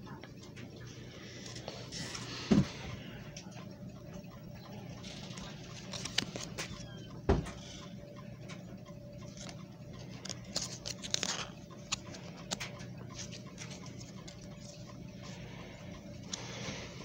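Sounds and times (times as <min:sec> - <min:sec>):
toy handling clicks and rustles: 0:04.9 - 0:07.0, 0:09.2 - 0:15.4.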